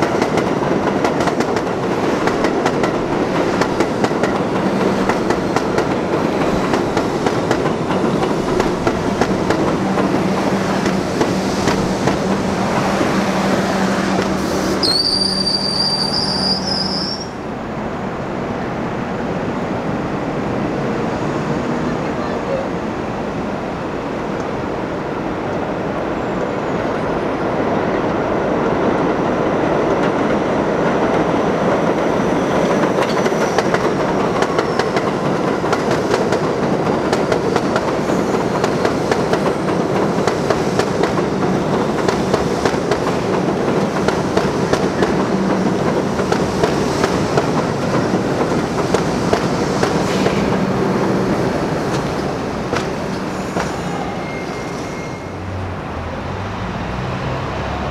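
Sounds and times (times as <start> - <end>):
train passing on elevated track: 0.0 - 57.9.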